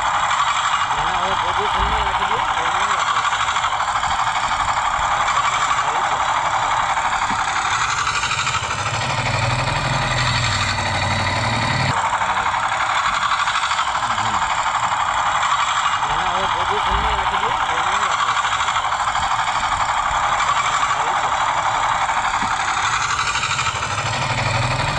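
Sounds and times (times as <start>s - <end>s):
small engine running fast: 0.0s - 24.9s
deep hum: 0.9s - 3.0s, 16.0s - 18.2s.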